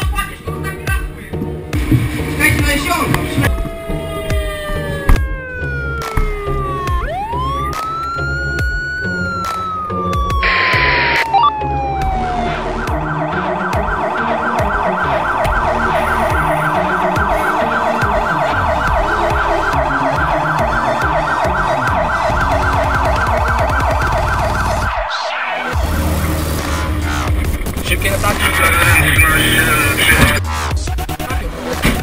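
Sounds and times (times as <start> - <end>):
electronic siren wailing and yelping: 2.8 - 26.0, 28.4 - 30.4.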